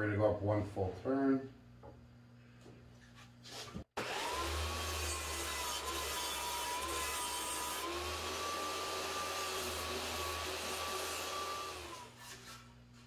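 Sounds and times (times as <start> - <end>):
table saw motor whine: 4.0 - 12.2
saw blade grinding wood: 4.0 - 12.6.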